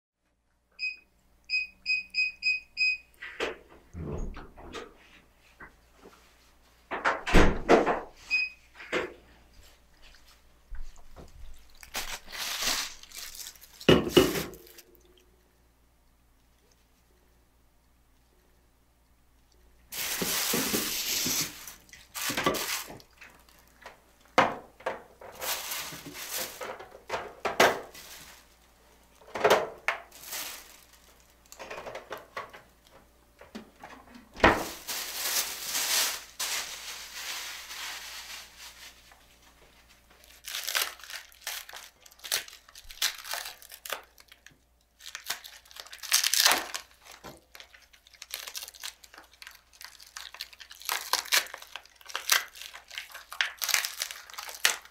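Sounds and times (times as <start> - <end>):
paper wrapping crinkling and tearing: 10.9 - 15.1, 19.9 - 23.8, 25.1 - 32.4, 34.4 - 54.9.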